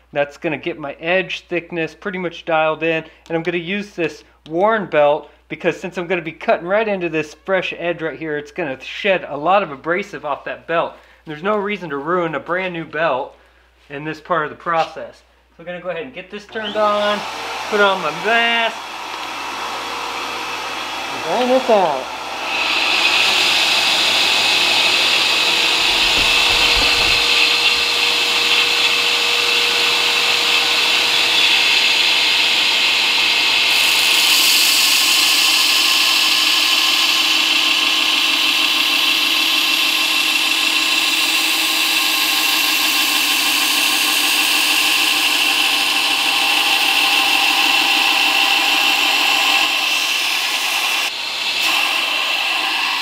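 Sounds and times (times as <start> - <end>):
belt grinder grinding steel: 16.6 - 53.0.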